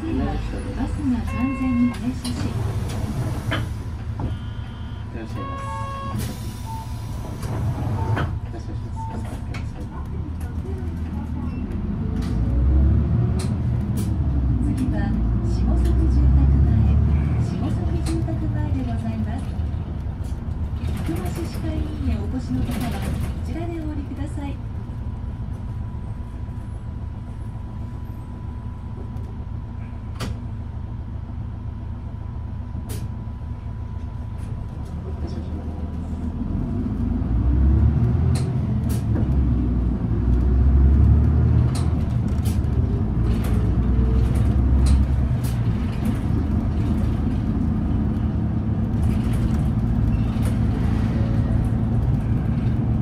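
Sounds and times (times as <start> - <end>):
bus engine: 0.0 - 53.0.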